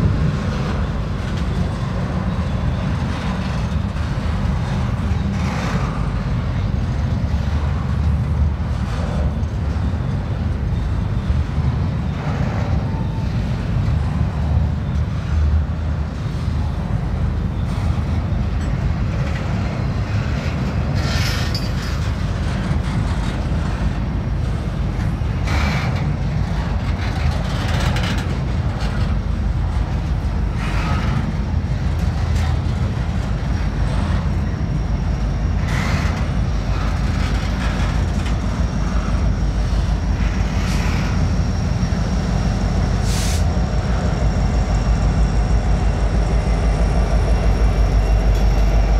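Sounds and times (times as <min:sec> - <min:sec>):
freight train rumble: 0:00.0 - 0:48.9
train car clanks: 0:00.0 - 0:48.9
high steady squeal: 0:38.4 - 0:48.9.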